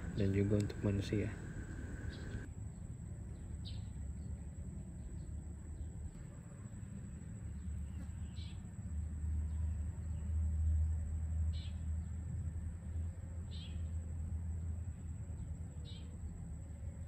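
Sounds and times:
low hum: 0:00.0 - 0:02.5.

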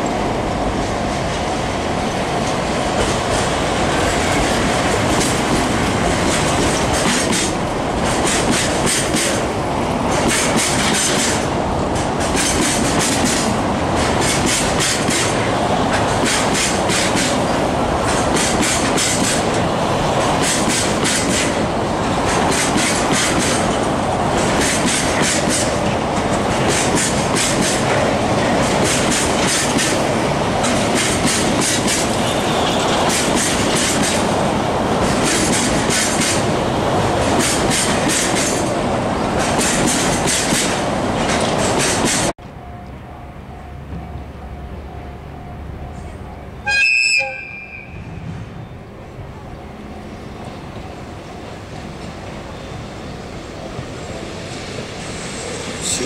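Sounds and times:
train rumble: 0:00.0 - 0:46.8, 0:47.9 - 0:56.0
train wheels clacking over rail joints: 0:02.4 - 0:34.3, 0:35.0 - 0:36.5, 0:37.2 - 0:42.3.

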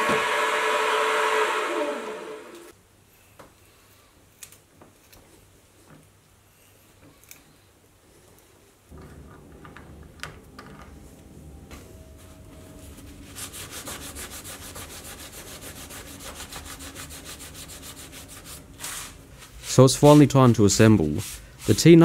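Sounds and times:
cloth wiping metal block: 0:12.8 - 0:22.0.

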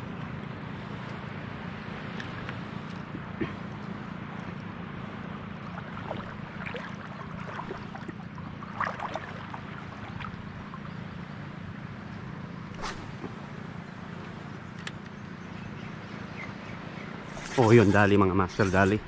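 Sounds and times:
seawater lapping on rocks: 0:00.2 - 0:11.6
small water splashes and drips: 0:02.1 - 0:11.6.

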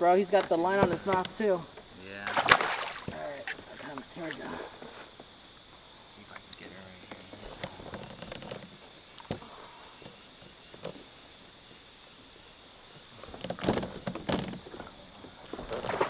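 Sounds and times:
insects buzzing: 0:00.0 - 0:16.0
water splashing: 0:00.6 - 0:05.1, 0:13.1 - 0:16.0.

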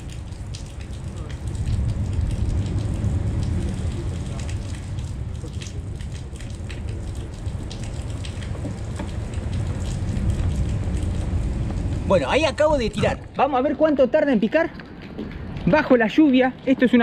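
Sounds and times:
drops ticking close by: 0:00.0 - 0:13.6
steady low rumble: 0:00.0 - 0:14.2
rain falling: 0:00.0 - 0:17.0.

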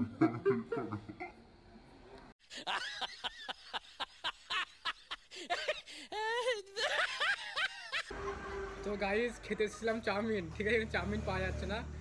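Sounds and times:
comic laughter sound effect: 0:00.0 - 0:01.4
people laughing: 0:02.5 - 0:08.6.

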